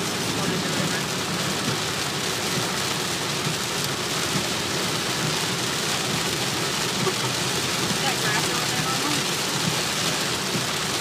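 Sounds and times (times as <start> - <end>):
heavy rain on car: 0.0 - 11.0.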